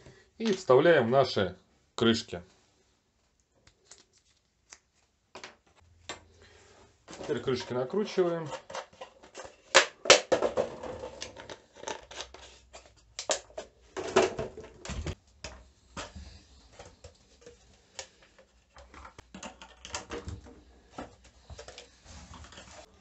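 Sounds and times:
plastic bottles clicking and knocking: 0:07.1 - 0:22.9.

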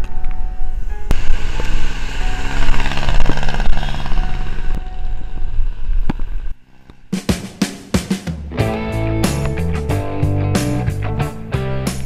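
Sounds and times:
low engine drone: 0:00.0 - 0:07.2.

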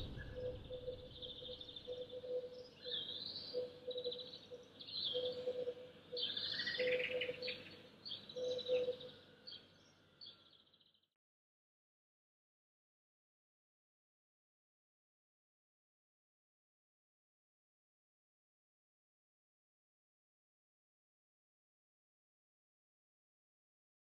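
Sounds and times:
low repeating bird note: 0:00.0 - 0:01.8
songbirds chirping and trilling: 0:00.0 - 0:11.0.

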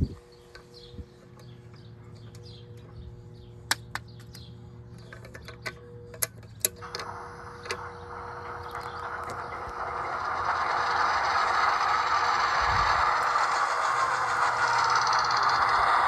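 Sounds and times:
steady hum: 0:00.0 - 0:16.0
model train motor whirring: 0:06.7 - 0:16.0.

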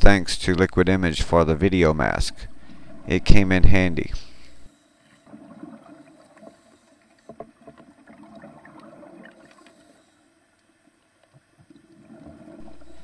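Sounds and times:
small underwater clicks: 0:06.1 - 0:13.0.

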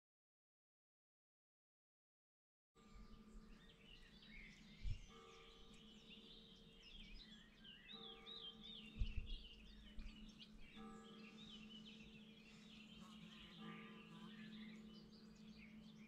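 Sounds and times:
small birds chirping: 0:02.8 - 0:16.0.

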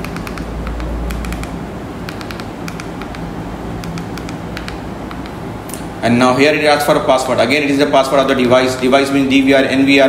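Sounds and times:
remote control buttons clicking: 0:00.0 - 0:05.4
steady background hum: 0:00.0 - 0:10.0.

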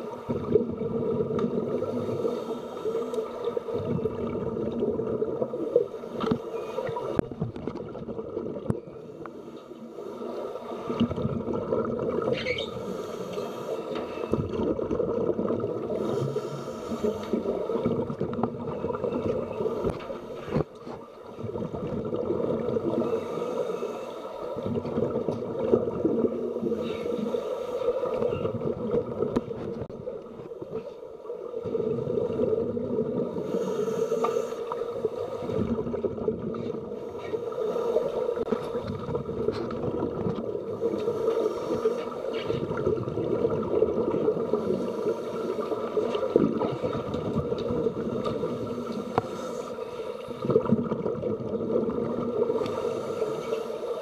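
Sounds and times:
underwater hum: 0:00.0 - 0:54.0
faint clicks: 0:02.8 - 0:03.6.

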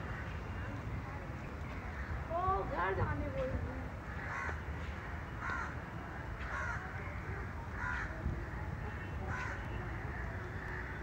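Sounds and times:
crow cawing: 0:04.1 - 0:04.6, 0:05.4 - 0:05.8, 0:06.5 - 0:06.8, 0:07.7 - 0:08.2, 0:09.3 - 0:09.7.

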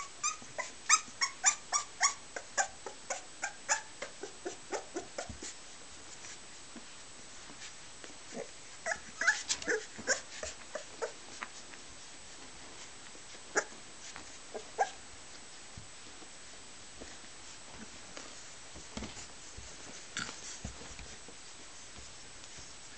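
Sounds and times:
puppy yips: 0:00.0 - 0:05.3, 0:08.8 - 0:11.2
puppies whimpering and squeaking: 0:00.0 - 0:05.6, 0:08.8 - 0:11.2, 0:13.6 - 0:13.8, 0:14.5 - 0:15.0.

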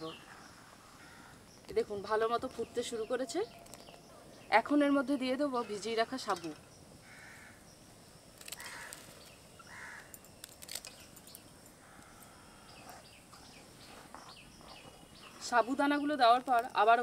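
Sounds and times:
crows cawing faintly: 0:00.2 - 0:01.5, 0:07.0 - 0:07.7, 0:08.4 - 0:10.3, 0:11.7 - 0:13.1.

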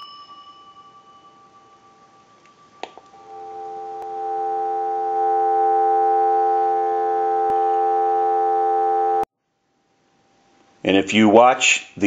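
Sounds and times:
telephone dial tone: 0:02.9 - 0:09.3.

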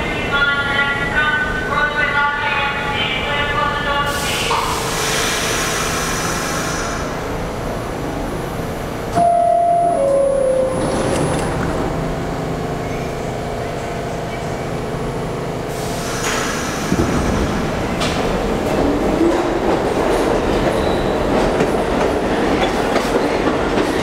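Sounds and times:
train motors and ventilation hum: 0:00.0 - 0:24.0
two-note door chime: 0:09.2 - 0:11.2.

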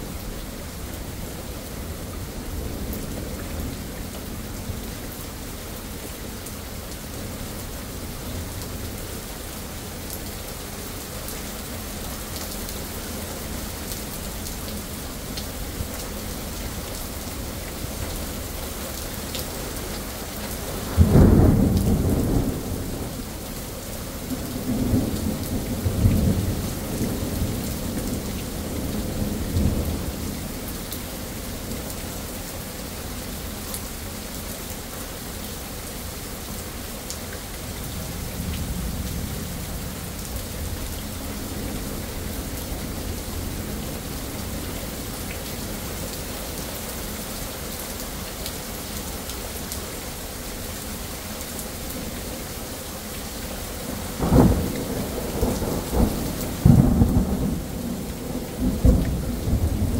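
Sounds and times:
rain on pavement and foliage: 0:00.0 - 0:59.9
thunder rumbling: 0:54.2 - 0:59.9.

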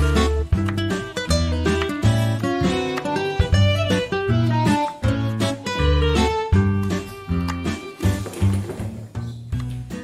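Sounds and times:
guitar music with strong bass: 0:00.0 - 0:10.0.

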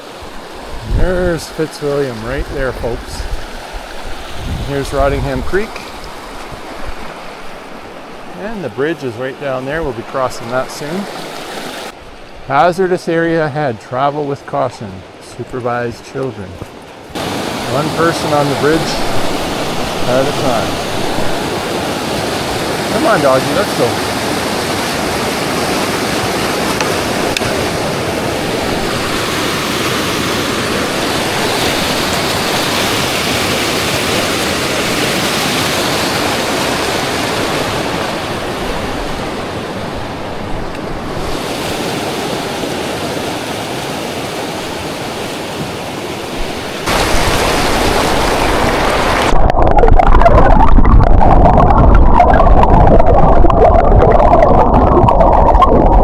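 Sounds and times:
rushing creek water: 0:00.0 - 0:56.0.

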